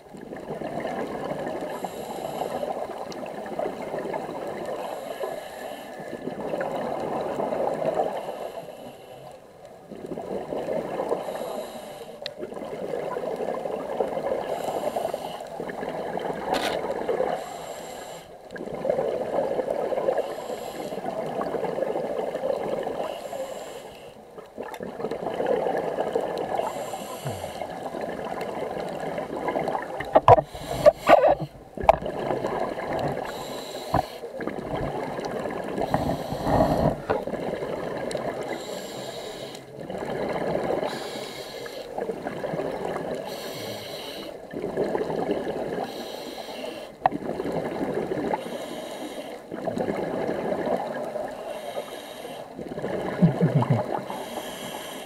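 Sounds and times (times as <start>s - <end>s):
exhaled bubbles gushing: 0.1s - 1.7s, 18.6s - 20.2s, 24.5s - 38.7s, 39.7s - 41.1s, 41.9s - 43.6s, 44.4s - 45.9s, 47.0s - 48.4s, 49.5s - 51.4s, 52.6s - 54.3s
diver breathing through regulator: 11.2s - 12.2s, 14.5s - 15.6s, 17.4s - 18.4s, 20.2s - 21.1s, 23.0s - 24.2s, 26.5s - 27.9s, 30.0s - 31.9s, 32.9s - 37.3s, 38.4s - 39.8s, 40.8s - 42.0s, 43.2s - 44.4s, 45.8s - 47.0s, 48.3s - 49.5s, 51.3s - 52.6s, 53.5s - 55.0s.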